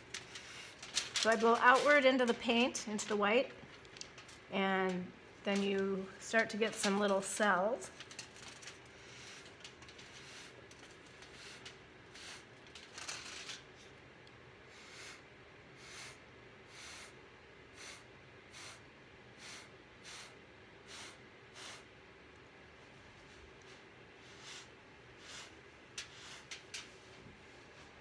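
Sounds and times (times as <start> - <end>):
breath puffs through a straw: 11.3 - 12.5, 14.7 - 15.2, 15.8 - 18.8, 19.4 - 21.9, 24.2 - 26.5.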